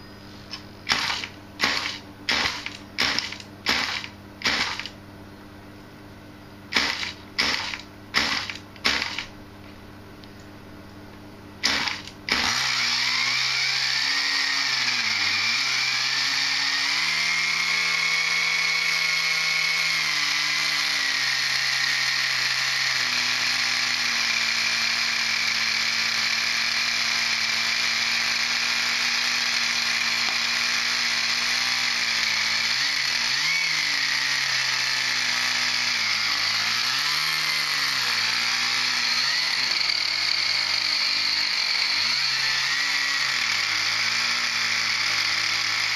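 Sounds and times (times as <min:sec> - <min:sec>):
small model engine buzzing: 0:00.9 - 0:04.9, 0:06.7 - 0:09.3, 0:11.6 - 0:45.9.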